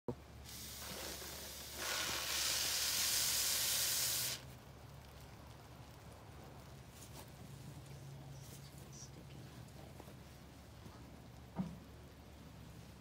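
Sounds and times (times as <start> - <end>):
aerosol spray hissing: 0.4 - 4.4.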